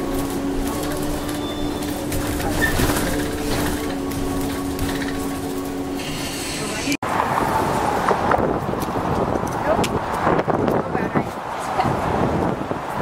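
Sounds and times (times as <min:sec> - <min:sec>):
vehicle cabin hum: 0:00.0 - 0:07.0.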